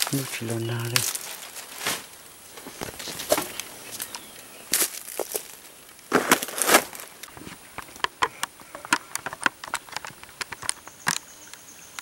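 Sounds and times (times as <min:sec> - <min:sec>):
footsteps crunching through leaves: 0:00.0 - 0:07.5
rustling through undergrowth: 0:00.0 - 0:11.3
twigs snapping and crackling: 0:00.0 - 0:11.6.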